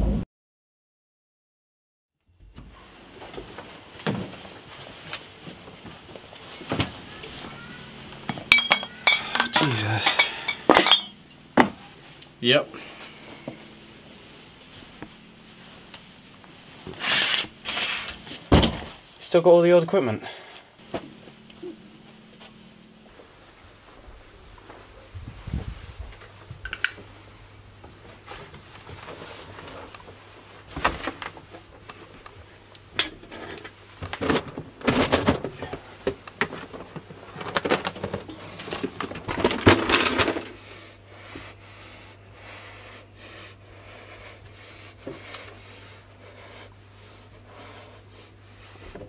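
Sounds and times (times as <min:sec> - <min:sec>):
steady low hum: 0:02.4 - 0:49.0
hard objects clinking and clattering: 0:08.2 - 0:11.7.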